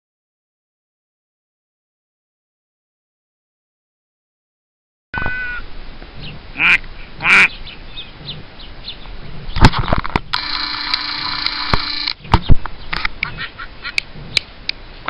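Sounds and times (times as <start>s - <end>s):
duck quacking: 5.2s - 5.6s, 6.6s - 8.4s, 12.9s - 14.1s
steady mechanical whine: 9.6s - 12.6s.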